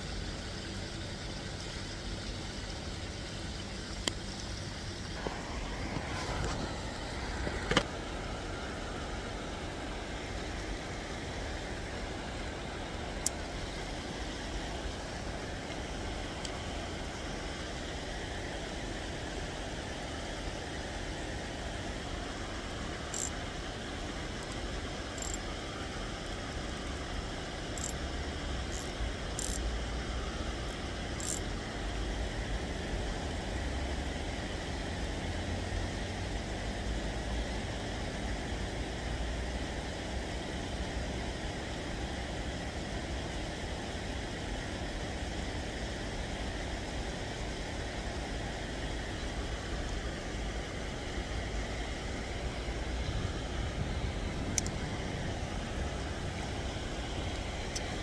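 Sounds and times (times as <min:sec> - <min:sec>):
even hiss: 0:00.0 - 0:58.0
faint ticks: 0:03.9 - 0:04.6, 0:23.1 - 0:23.4, 0:24.4 - 0:25.5, 0:26.2 - 0:27.1, 0:27.8 - 0:28.0, 0:28.6 - 0:29.7, 0:30.6 - 0:31.4.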